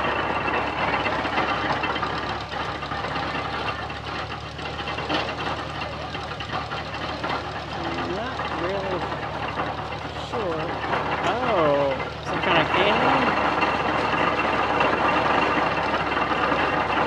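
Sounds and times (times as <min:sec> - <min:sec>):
old stationary engine running: 0:00.0 - 0:17.0.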